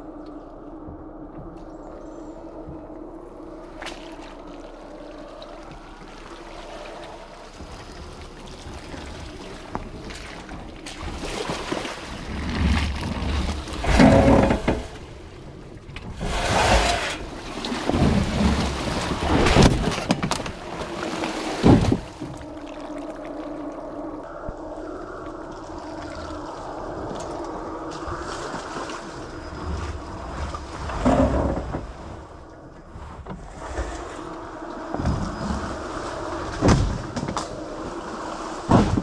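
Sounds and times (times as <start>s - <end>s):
tyres splashing through muddy water: 3.5s - 15.2s, 16.1s - 23.4s.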